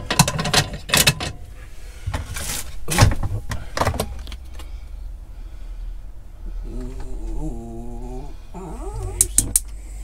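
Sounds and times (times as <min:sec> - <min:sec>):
knocks and clicks of handling: 0:00.0 - 0:01.4, 0:02.1 - 0:04.7.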